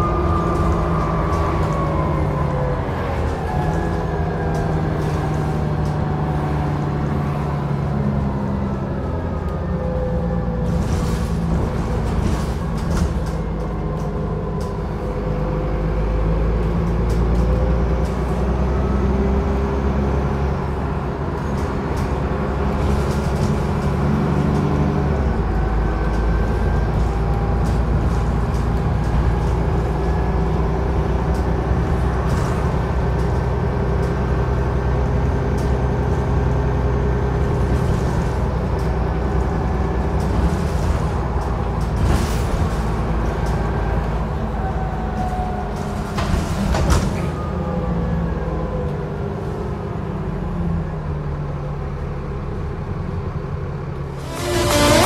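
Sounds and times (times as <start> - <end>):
bus engine drone: 0.0 - 55.0.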